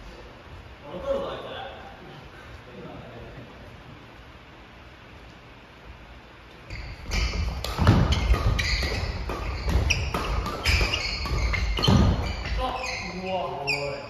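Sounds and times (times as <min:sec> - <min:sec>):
racket hitting shuttlecock: 0:06.7 - 0:12.9
shoe squeaks: 0:06.7 - 0:14.0.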